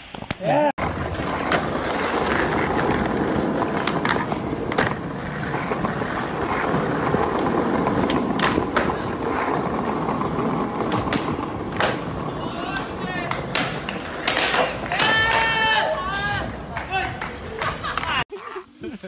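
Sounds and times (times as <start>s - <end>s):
skateboard wheels rumbling: 0.8s - 18.8s.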